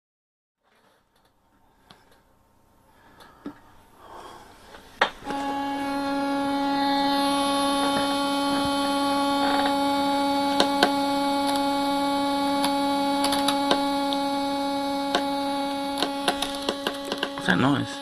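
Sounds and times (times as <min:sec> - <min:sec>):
speaker electrical hum: 0:00.7 - 0:18.0
sharp clicks: 0:10.5 - 0:11.7, 0:12.6 - 0:14.2, 0:15.9 - 0:17.4.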